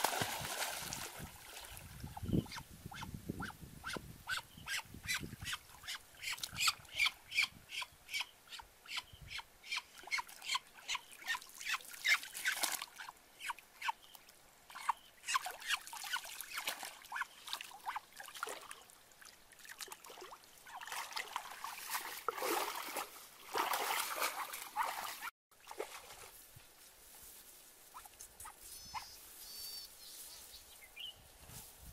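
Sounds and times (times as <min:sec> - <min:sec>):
water splashing: 0:00.0 - 0:02.2, 0:15.4 - 0:26.3.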